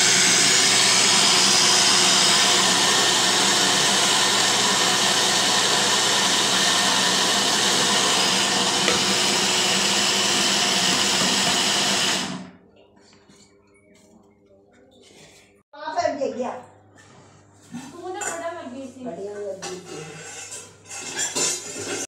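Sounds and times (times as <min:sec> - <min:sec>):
mixer grinder grinding seeds: 0:00.0 - 0:12.5.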